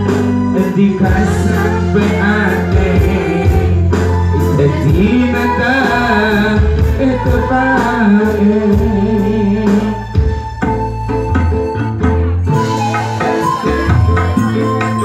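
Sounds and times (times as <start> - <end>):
person singing: 0.0 - 10.3
live band music over speakers: 0.0 - 15.0.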